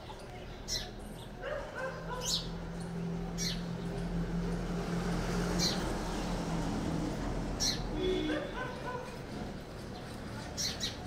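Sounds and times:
sparrow chirping: 0:00.5 - 0:02.7, 0:03.3 - 0:03.9, 0:07.6 - 0:07.9, 0:10.0 - 0:11.0.

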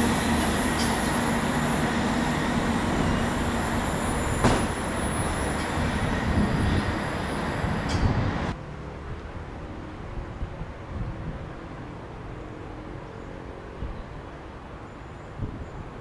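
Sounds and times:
diesel train engine under power: 0:00.0 - 0:08.6
distant train rumble: 0:00.0 - 0:16.0
rail and wheel noise: 0:00.0 - 0:16.0.

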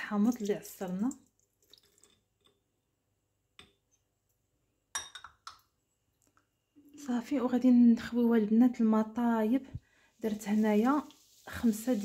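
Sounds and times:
ceramic bowl clinking on wood: 0:05.0 - 0:05.6.

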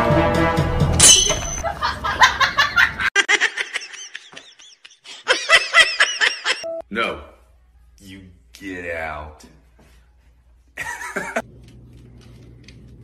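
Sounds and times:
high-pitched laughter: 0:01.6 - 0:06.7.

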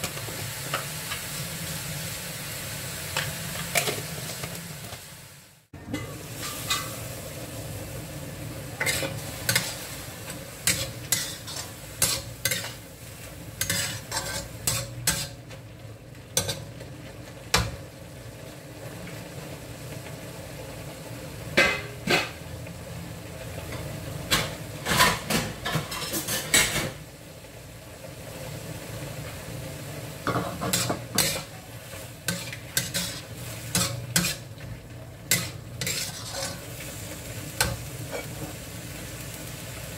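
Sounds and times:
food sizzling in a wok: 0:00.0 - 0:39.9
metal ladle scraping a wok: 0:06.0 - 0:07.1, 0:08.8 - 0:12.8, 0:13.6 - 0:15.4, 0:30.3 - 0:34.6, 0:35.3 - 0:38.6.

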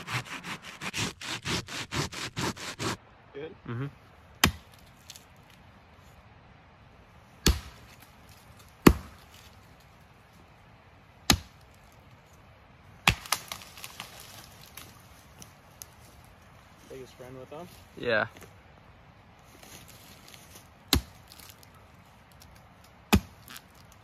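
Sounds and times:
wood crackling: 0:00.0 - 0:03.0, 0:11.3 - 0:18.6, 0:19.3 - 0:24.0
axe chopping tree trunk: 0:04.4 - 0:04.8, 0:07.4 - 0:08.0, 0:08.8 - 0:09.2, 0:11.2 - 0:11.6, 0:13.0 - 0:14.2, 0:20.9 - 0:21.5, 0:23.1 - 0:23.6.

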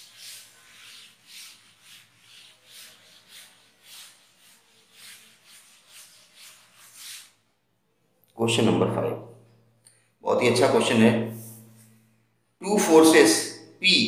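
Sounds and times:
duster wiping chalkboard: 0:00.0 - 0:07.5.

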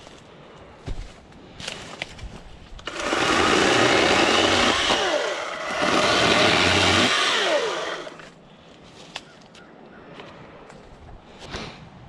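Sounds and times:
chainsaw motor whining: 0:02.8 - 0:08.2.

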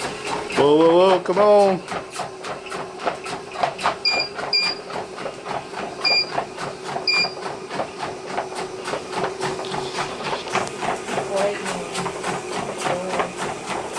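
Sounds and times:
dog paws padding on treadmill belt: 0:00.0 - 0:13.9
treadmill motor hum: 0:00.0 - 0:13.9
short high beeps: 0:06.0 - 0:06.3, 0:07.1 - 0:07.4.

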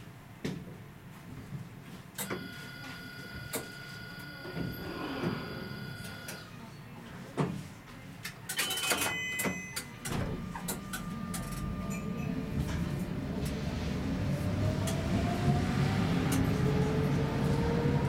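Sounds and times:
short beeps: 0:02.2 - 0:06.4, 0:08.6 - 0:12.8
wheels rumbling on rail: 0:10.0 - 0:18.0.

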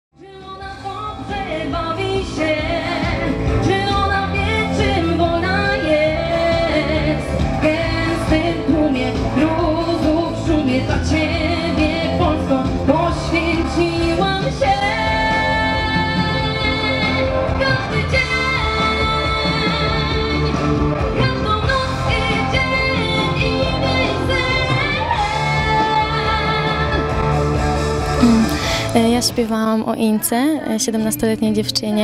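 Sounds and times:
woman singing into a microphone: 0:00.2 - 0:27.3
band playing a steady beat: 0:00.8 - 0:29.5.

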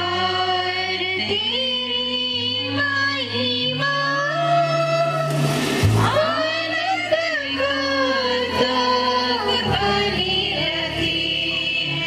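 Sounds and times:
choir singing: 0:03.8 - 0:12.0.

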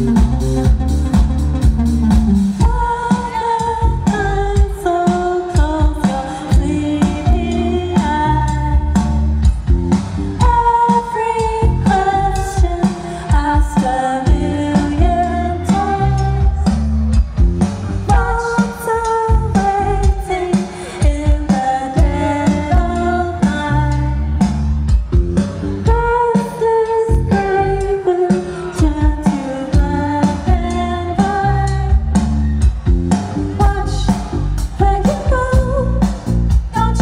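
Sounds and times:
drum beat: 0:00.0 - 0:03.0
live band music: 0:00.0 - 0:37.0
singer: 0:02.6 - 0:09.7, 0:10.3 - 0:37.0.

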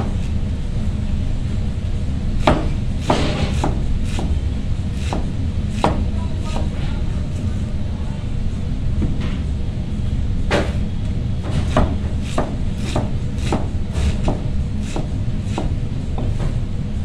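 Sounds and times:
steady low rumble: 0:00.0 - 0:17.0
knife chopping cabbage: 0:02.4 - 0:06.7, 0:11.4 - 0:16.3.

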